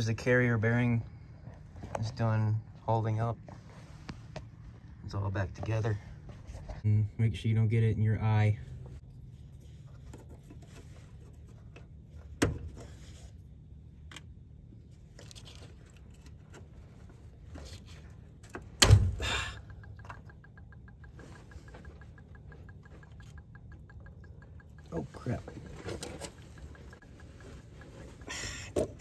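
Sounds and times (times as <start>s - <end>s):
fast even ticking: 19.2s - 29.0s
small clicks and rattles: 19.5s - 29.0s.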